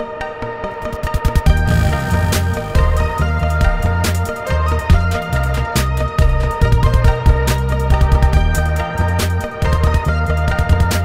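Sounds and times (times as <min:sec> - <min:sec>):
pulsing bass line: 0:01.4 - 0:11.0
sharp drum hits: 0:01.5 - 0:04.2.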